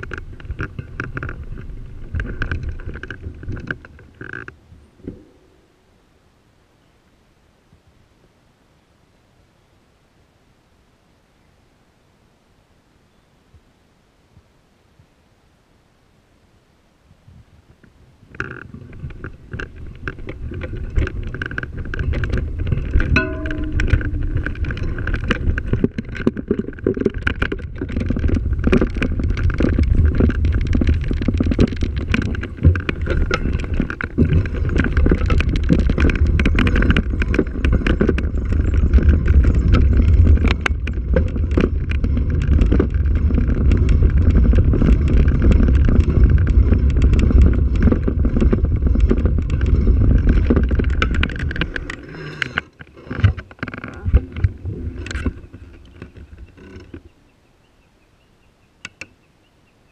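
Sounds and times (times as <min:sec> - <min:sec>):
tyres crunching over dirt track: 0:00.0 - 0:05.8, 0:17.7 - 0:57.4
wind rumble on microphone: 0:00.0 - 0:05.8, 0:17.0 - 0:59.9.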